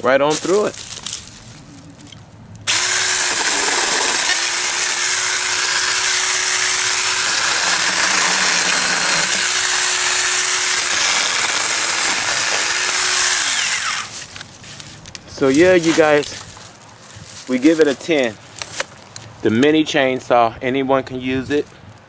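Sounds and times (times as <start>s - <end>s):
mini chainsaw cutting stems: 2.7s - 16.6s.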